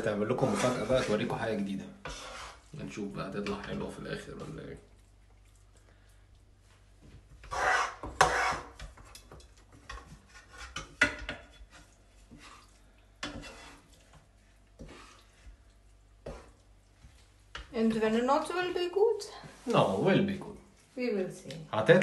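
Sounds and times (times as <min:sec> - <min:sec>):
utensils scraping in frying pan: 0:00.0 - 0:04.5, 0:07.3 - 0:20.9.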